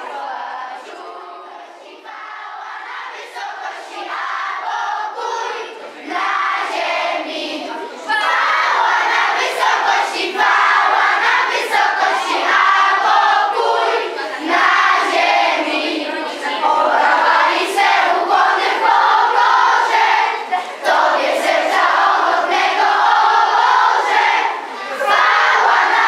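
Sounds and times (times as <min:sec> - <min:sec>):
children singing together: 0:00.0 - 0:26.0.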